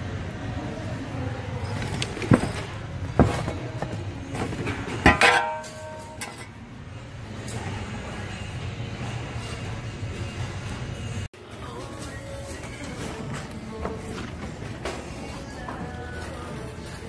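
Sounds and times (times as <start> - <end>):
hard goods clinking in a bin: 1.6 - 6.6.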